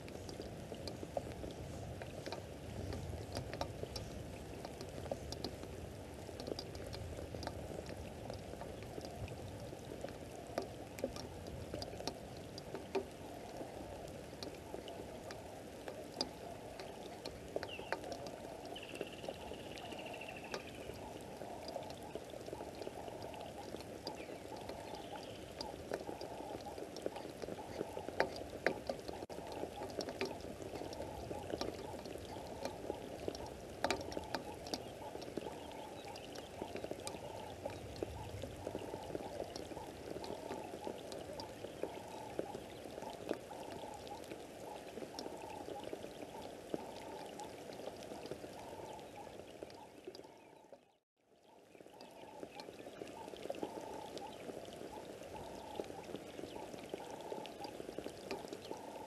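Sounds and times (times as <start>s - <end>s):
water dripping and pattering: 0.0s - 59.0s.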